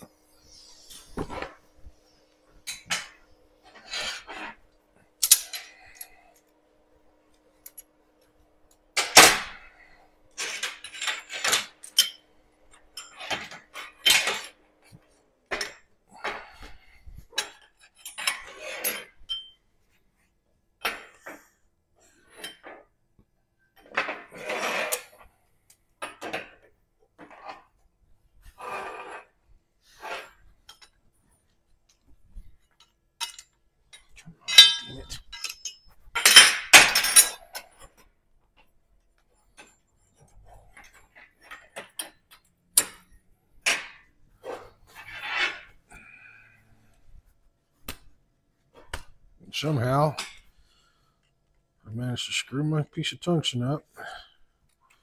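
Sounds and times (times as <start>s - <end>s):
metal clanks and clinks: 10.4s - 14.6s, 17.4s - 19.6s, 32.7s - 37.9s.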